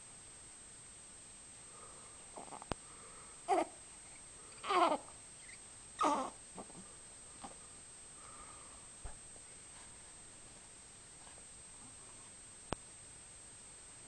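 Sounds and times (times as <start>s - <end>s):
baby cooing: 2.4s - 2.7s, 3.5s - 3.8s, 4.5s - 6.8s.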